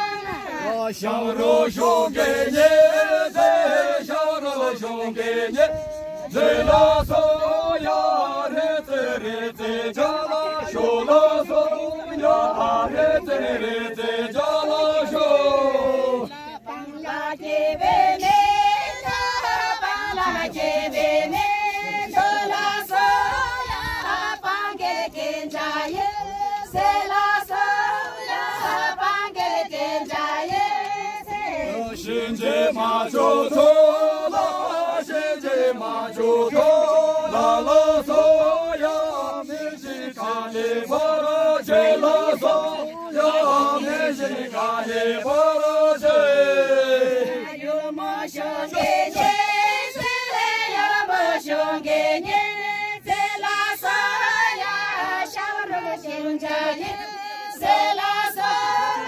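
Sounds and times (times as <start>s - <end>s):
choir singing slow melody: 0.0s - 59.0s.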